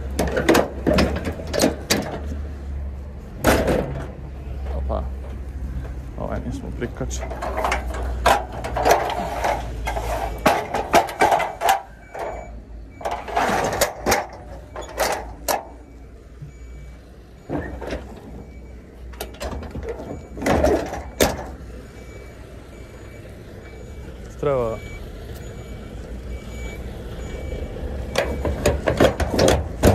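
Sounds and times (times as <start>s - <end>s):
metal clicks and clanks: 0.0s - 2.4s, 7.1s - 16.0s, 17.4s - 21.6s, 28.1s - 29.9s
short scraping rustles: 8.8s - 10.5s.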